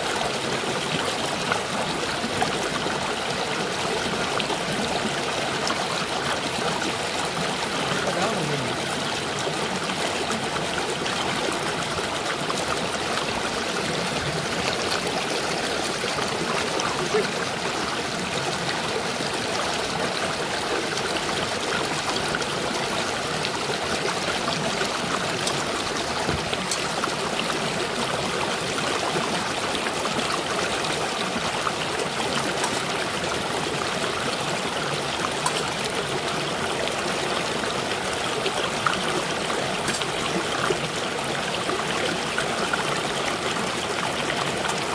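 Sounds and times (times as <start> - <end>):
stream rushing over rocks: 0.0 - 44.9.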